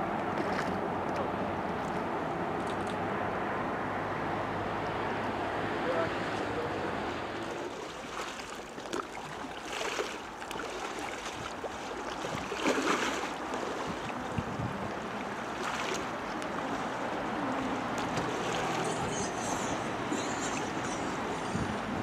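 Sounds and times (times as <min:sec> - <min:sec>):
water rushing: 0:00.0 - 0:22.0.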